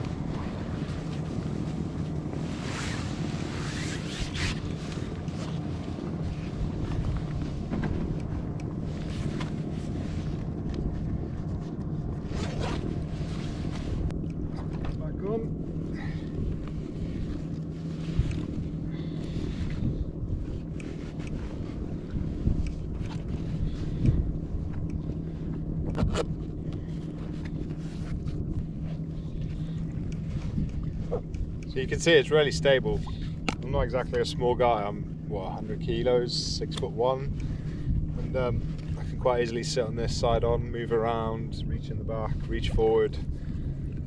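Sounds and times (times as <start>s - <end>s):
water lapping at hull: 0.0s - 40.3s
steady low hum: 0.0s - 44.0s
wind buffeting microphone: 0.0s - 44.0s.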